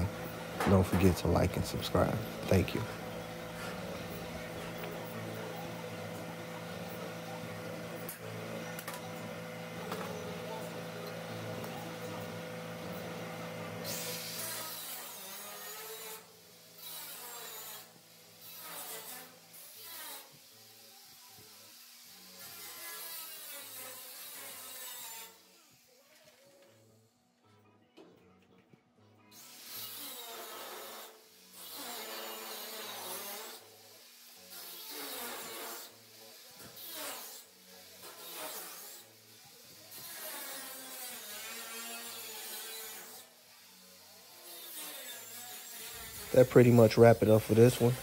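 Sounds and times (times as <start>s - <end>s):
faint background music: 0.0s - 48.0s
plasma torch hissing: 13.8s - 15.1s.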